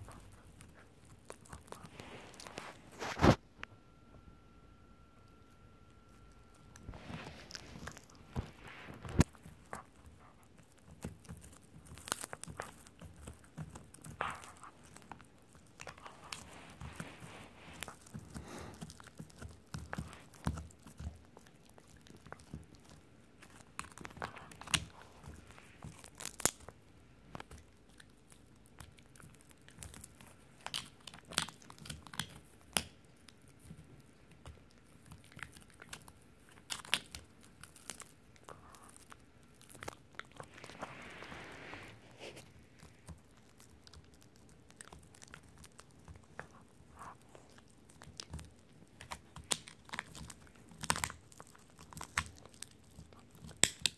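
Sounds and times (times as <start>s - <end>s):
dog chewing rawhide bone: 0.0s - 3.4s, 5.4s - 53.9s.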